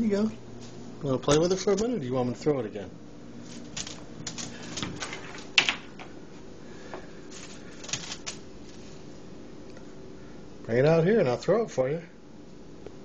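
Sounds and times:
crinkly rustles: 3.4 - 5.6, 7.2 - 9.2.

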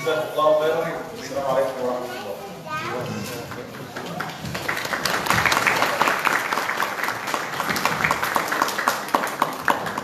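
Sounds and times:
audience clapping: 3.5 - 10.0.

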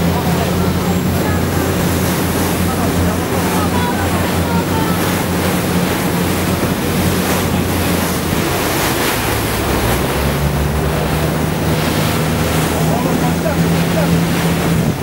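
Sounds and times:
boat engine drone: 0.0 - 15.0
sea waves: 0.0 - 15.0
wind on microphone: 0.0 - 15.0.

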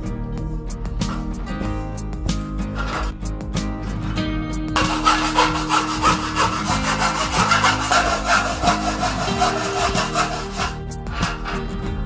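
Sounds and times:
hacksaw cutting metal: 2.8 - 3.1, 4.8 - 11.6.

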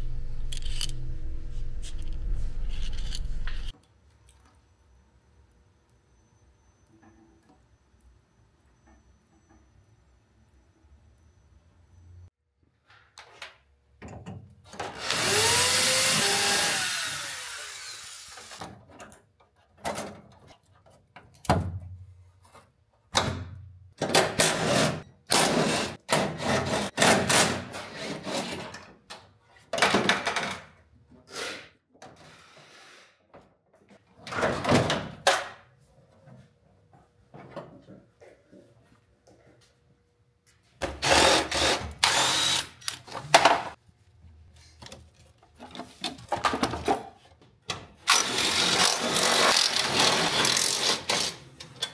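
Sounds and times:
hand-held power tool running: 15.0 - 18.6, 41.0 - 43.0, 48.1 - 51.4.

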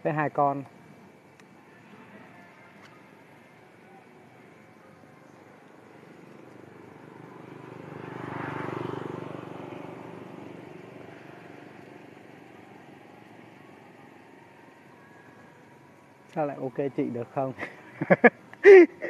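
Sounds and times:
vehicle passing by: 6.2 - 14.4.

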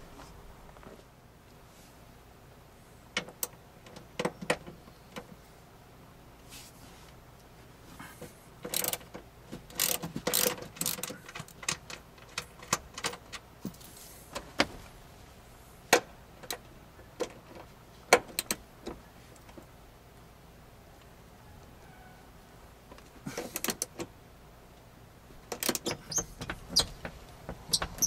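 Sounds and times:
ratchet wrench clicking: 8.7 - 9.1, 9.7 - 11.7.

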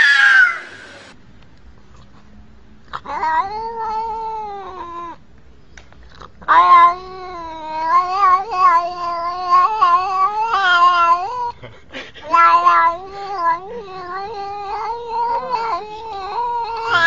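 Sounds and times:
cat yowling: 0.0 - 1.1, 3.0 - 5.2, 6.4 - 11.6, 12.2 - 17.0.

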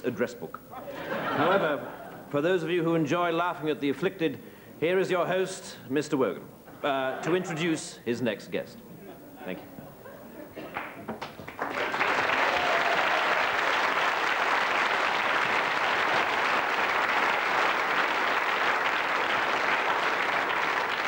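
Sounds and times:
audience applauding: 10.6 - 21.0.

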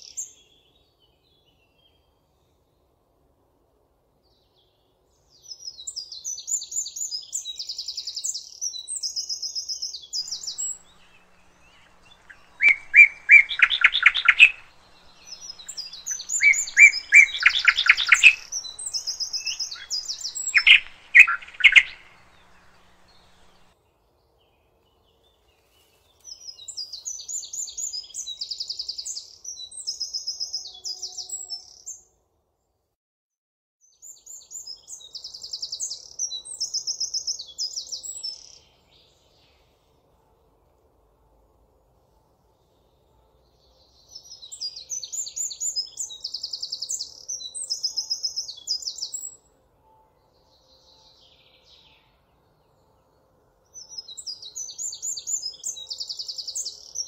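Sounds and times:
lower trilled birdsong: 4.3 - 25.5, 42.5 - 57.0
high chattering birdsong: 10.2 - 23.8.

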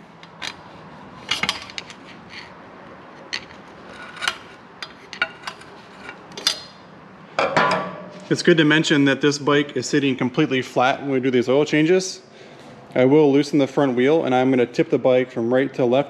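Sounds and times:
light clicks and small scrapes: 3.2 - 6.5.

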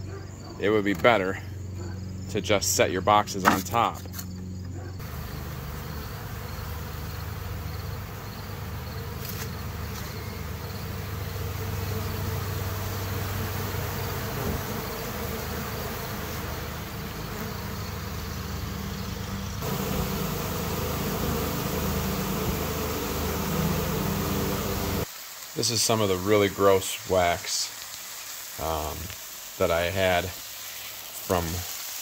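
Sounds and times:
bees buzzing: 5.0 - 25.1.

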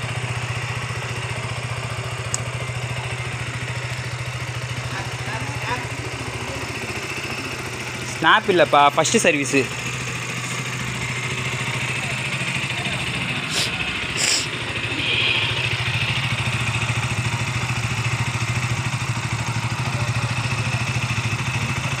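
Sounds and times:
motorcycle engine idling: 0.0 - 22.0
brief hissing: 13.5 - 15.6.

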